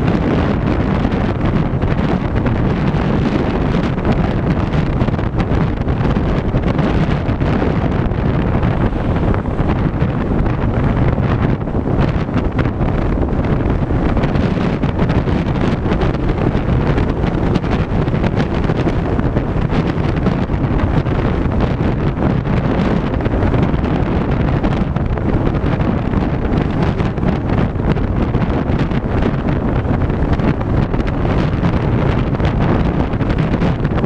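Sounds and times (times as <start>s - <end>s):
tyre and road noise: 0.0s - 34.0s
wind buffeting microphone: 0.0s - 34.0s.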